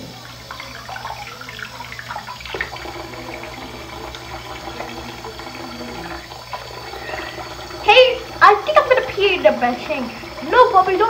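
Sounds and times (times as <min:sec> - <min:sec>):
faucet running into sink: 0:00.0 - 0:11.0.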